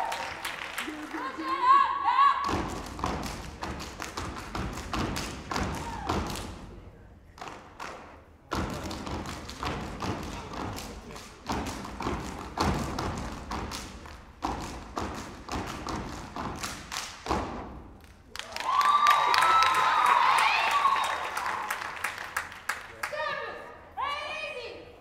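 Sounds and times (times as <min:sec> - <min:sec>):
stomping and clapping in unison: 0:00.0 - 0:01.7, 0:02.4 - 0:23.5
audience cheering: 0:00.0 - 0:01.8, 0:18.3 - 0:22.3.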